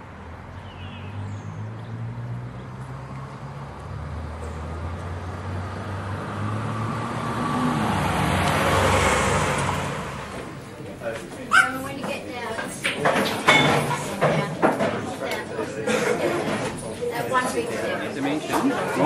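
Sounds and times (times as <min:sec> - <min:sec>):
vehicle passing close: 0:00.0 - 0:11.2.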